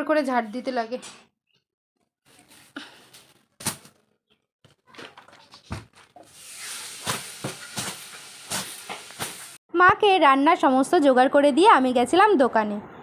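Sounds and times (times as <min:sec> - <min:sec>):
broom sweeping fabric: 0:06.4 - 0:09.6.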